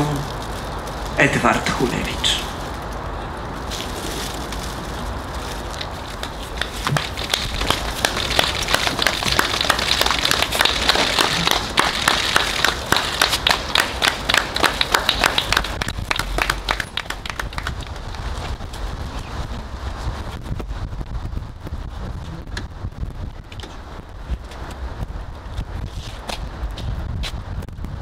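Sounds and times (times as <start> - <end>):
crowd applauding: 6.2 - 18.5.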